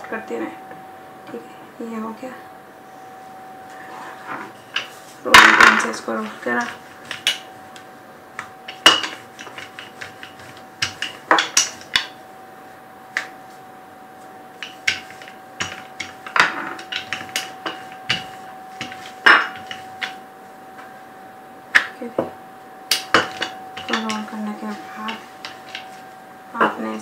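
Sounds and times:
faint steady hum: 0.0s - 27.0s
rolling pin knocking on countertop: 8.4s - 12.2s, 14.6s - 20.2s, 22.9s - 24.3s.

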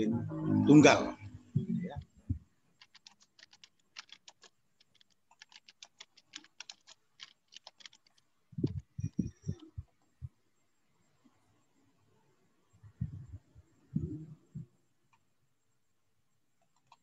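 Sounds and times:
keyboard typing: 2.8s - 10.0s, 16.6s - 17.0s.

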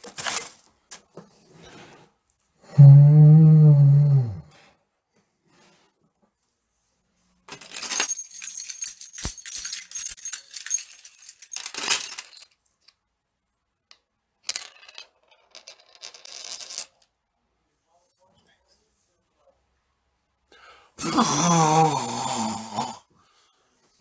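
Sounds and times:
small metal objects jingling: 7.5s - 12.6s, 14.5s - 17.0s.

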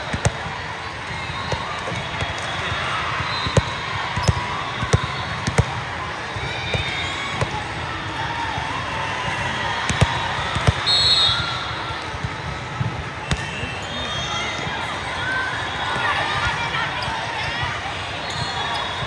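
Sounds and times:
volleyballs being hit and bouncing: 0.0s - 15.2s
murmur of spectators: 0.0s - 19.0s.

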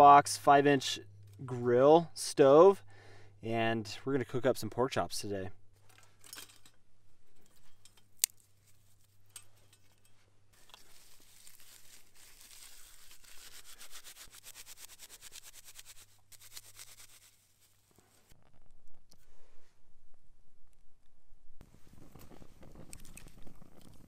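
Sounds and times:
twig clicking on metal stove: 7.4s - 8.5s
bark rubbed between hands: 10.8s - 18.3s.

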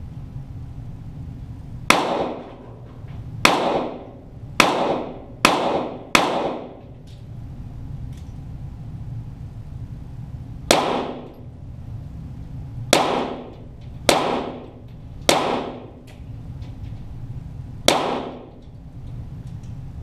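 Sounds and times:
target pistol shots echoing: 1.9s - 2.6s, 3.4s - 6.9s, 10.7s - 11.4s, 12.9s - 16.1s, 17.9s - 18.6s.

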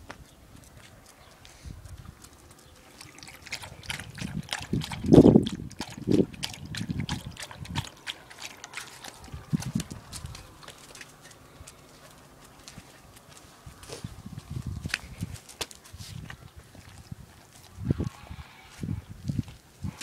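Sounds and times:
dog lapping water from bowl: 2.7s - 11.8s.

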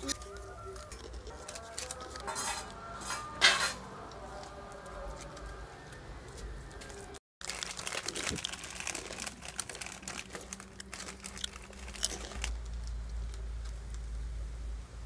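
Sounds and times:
plastic snack packet crinkling: 0.0s - 2.3s, 7.4s - 13.9s.

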